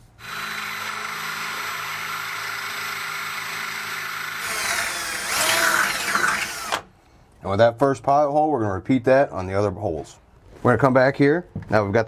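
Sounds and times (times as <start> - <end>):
cordless drill drilling metal: 0.0 - 6.9.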